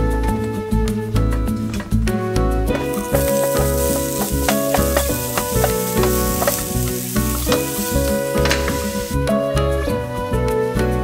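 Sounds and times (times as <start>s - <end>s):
food sizzling on grill: 2.7s - 9.2s.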